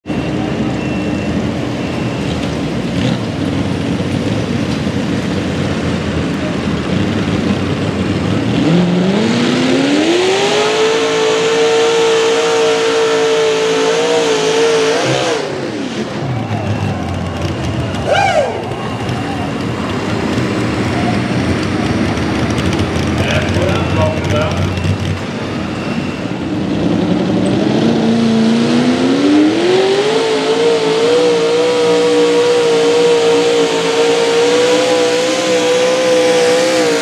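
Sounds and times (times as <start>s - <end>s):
tractor engine revving: 0.1s - 37.0s.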